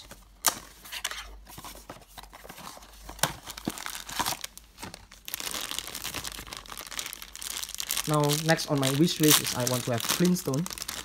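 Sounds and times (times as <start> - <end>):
foil bag crinkling: 3.3 - 11.0.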